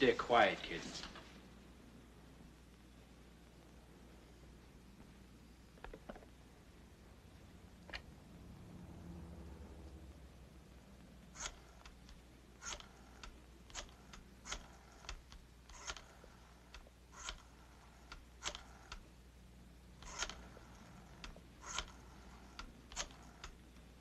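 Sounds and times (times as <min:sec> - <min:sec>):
rotary dial ticks: 0:11.4 - 0:19.1, 0:20.0 - 0:23.9
rotary telephone dial clicking: 0:11.4 - 0:19.1, 0:20.0 - 0:23.6.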